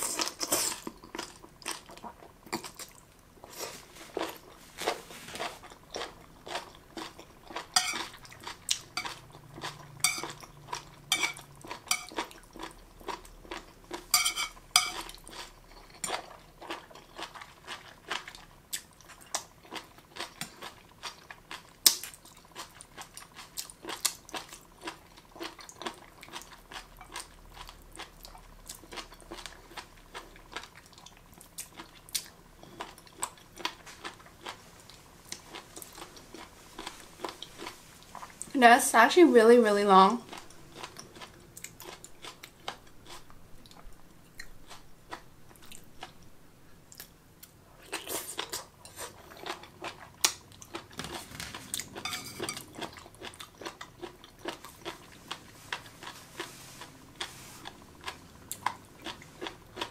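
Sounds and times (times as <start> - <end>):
crunchy chewing: 46.9 - 59.9.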